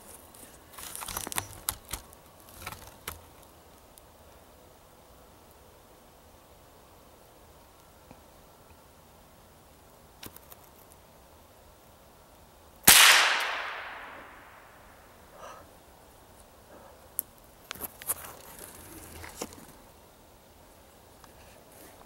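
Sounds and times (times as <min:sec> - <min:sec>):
light clicks and rustles: 0:00.0 - 0:04.1, 0:17.1 - 0:19.8
gunshot ringing: 0:12.9 - 0:14.7.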